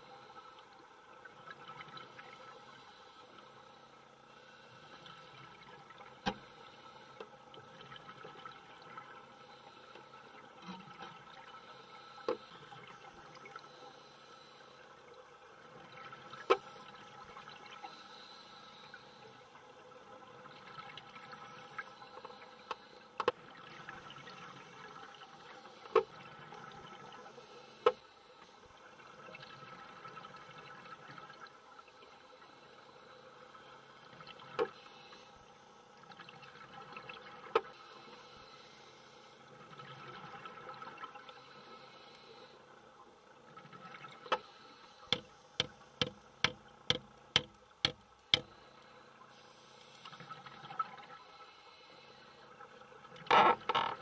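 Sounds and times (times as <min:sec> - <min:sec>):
sharp underwater clicks: 0:45.1 - 0:48.9.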